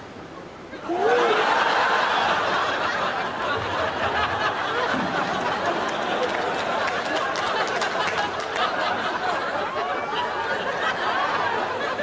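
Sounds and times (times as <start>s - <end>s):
studio audience laughing: 1.0s - 12.0s.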